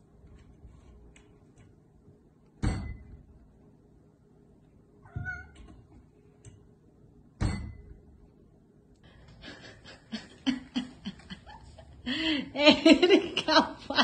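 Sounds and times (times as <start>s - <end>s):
cat meowing: 5.0s - 5.7s.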